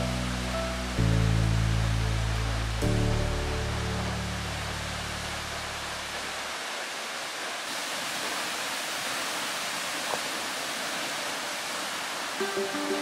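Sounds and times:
low music bed: 0:00.0 - 0:06.5, 0:12.4 - 0:13.0
waterfall roaring: 0:00.0 - 0:13.0.

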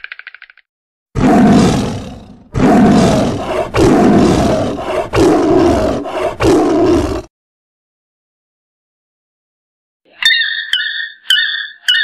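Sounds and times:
tiger roaring: 0:01.2 - 0:07.3.

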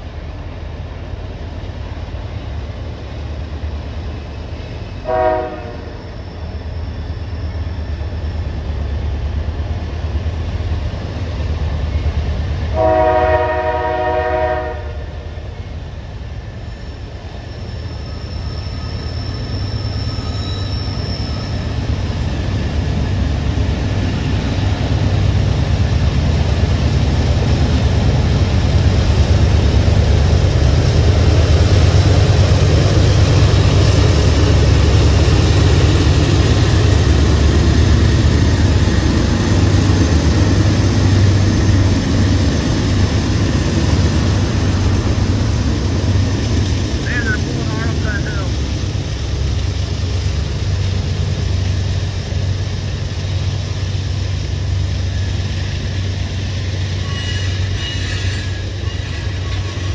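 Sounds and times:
diesel locomotive rumble: 0:00.0 - 0:59.9
train air horn blast: 0:05.0 - 0:05.9, 0:12.8 - 0:15.2.

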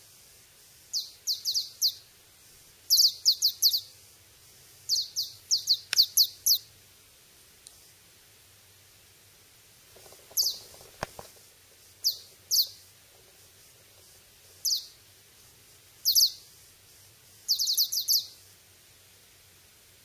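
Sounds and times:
high-pitched bird-like chirps: 0:00.9 - 0:02.0, 0:02.9 - 0:03.9, 0:04.9 - 0:06.7, 0:12.0 - 0:12.8, 0:14.6 - 0:15.0, 0:16.0 - 0:16.4, 0:17.5 - 0:18.4.

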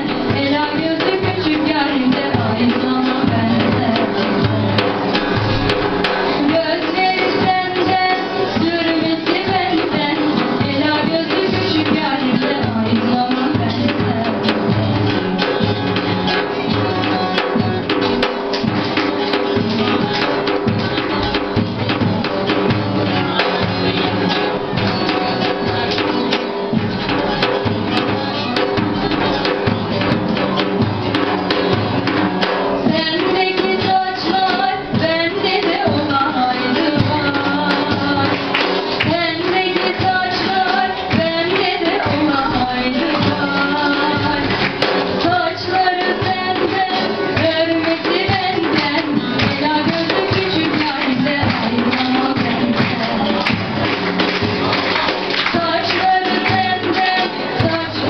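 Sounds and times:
frame drum with jingles: 0:00.0 - 0:58.0
plucked long-necked lute melody: 0:14.7 - 0:32.9
children's choir singing: 0:54.6 - 0:58.0.

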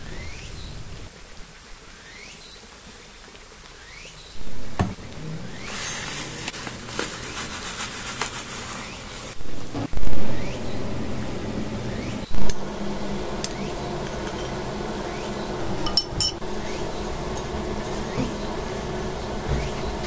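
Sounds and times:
steady low hum: 0:09.2 - 0:20.0
fork clinking against glass bowl: 0:15.8 - 0:16.4.

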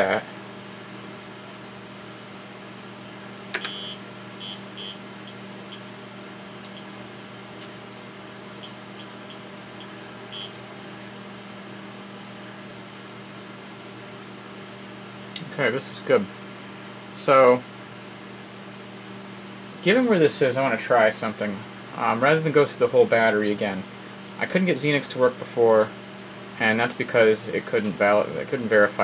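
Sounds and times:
computer fan humming: 0:00.0 - 0:29.0
floppy drive chirps: 0:03.5 - 0:07.0, 0:08.5 - 0:10.6.

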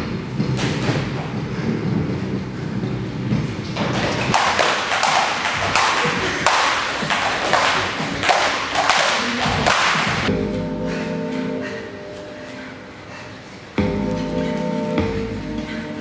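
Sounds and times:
dancers landing: 0:03.4 - 0:10.3
skipping ropes slapping floor: 0:03.8 - 0:10.3
music with held notes: 0:10.3 - 0:16.0.

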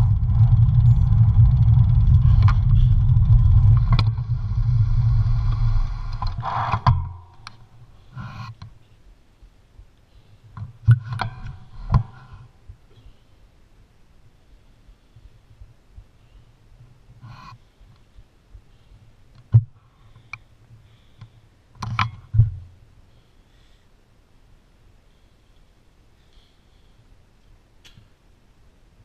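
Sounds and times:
wind rushing over microphone: 0:00.0 - 0:07.8
bicycle road noise: 0:00.0 - 0:08.5.

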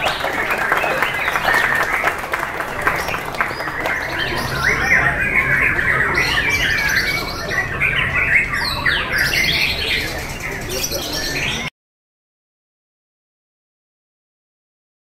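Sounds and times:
birds singing and whistling: 0:00.0 - 0:11.7.

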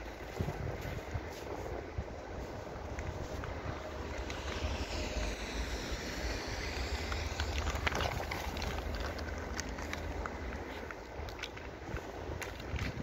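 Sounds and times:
footsteps crunching in snow: 0:00.0 - 0:13.0
wind rumble on microphone: 0:00.0 - 0:13.0.

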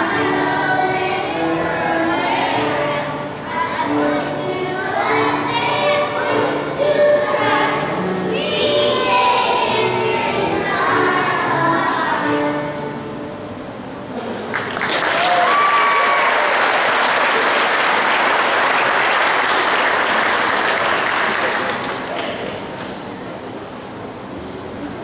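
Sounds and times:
audience applause: 0:14.5 - 0:23.0.

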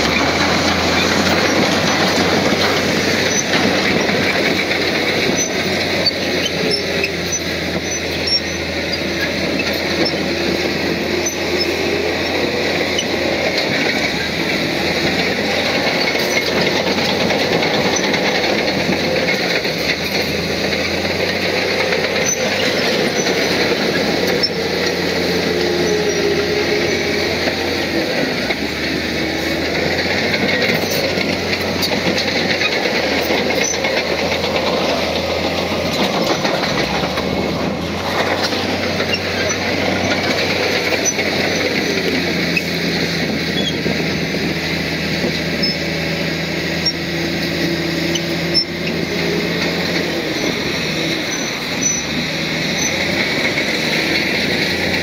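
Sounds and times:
bulldozer diesel engine droning: 0:00.0 - 0:55.0
steel tracks clattering and squealing: 0:00.0 - 0:55.0.

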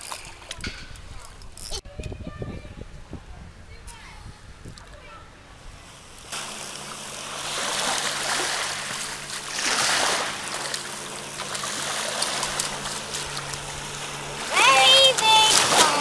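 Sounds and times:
small waves on sandy shore: 0:05.8 - 0:16.0
fish splashing at surface: 0:06.3 - 0:14.6.

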